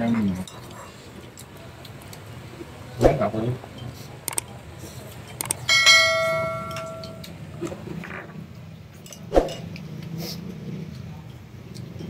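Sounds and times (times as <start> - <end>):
dishes clicking: 5.2 - 7.7
utensil striking metal tableware: 5.6 - 7.4.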